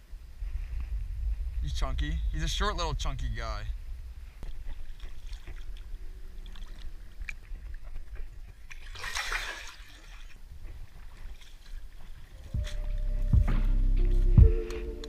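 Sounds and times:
water splashing and sloshing: 4.2s - 15.0s.

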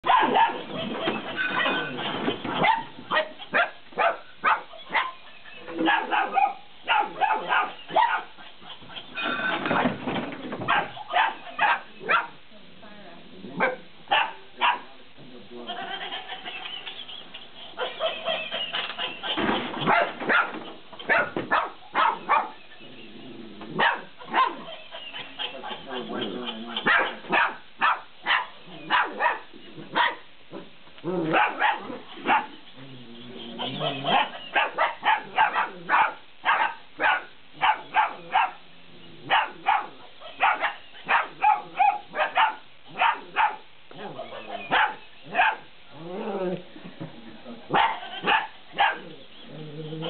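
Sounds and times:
puppy barking: 0.0s - 0.7s, 1.4s - 1.9s, 2.6s - 8.9s, 10.6s - 12.4s, 13.6s - 14.9s, 19.8s - 22.6s, 23.8s - 24.8s, 26.7s - 32.6s, 33.6s - 38.6s, 39.3s - 45.7s, 47.7s - 49.2s
cat toy laughing: 15.6s - 19.6s, 24.2s - 27.2s, 32.0s - 34.8s, 48.0s - 48.4s
puppy whining: 31.2s - 34.8s.

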